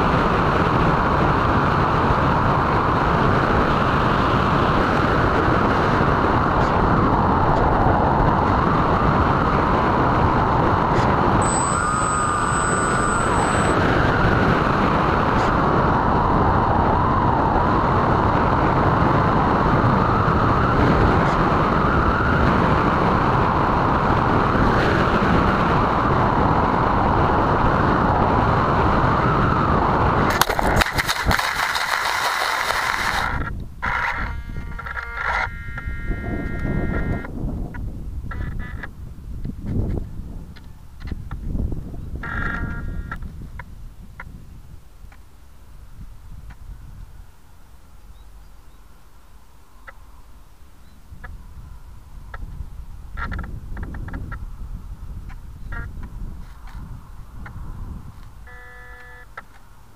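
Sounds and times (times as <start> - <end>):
wind rushing over airframe: 0.0 - 34.9
electric motors and propellers whining: 4.5 - 23.6, 29.3 - 37.3
brief high-pitched tone: 11.4 - 13.9.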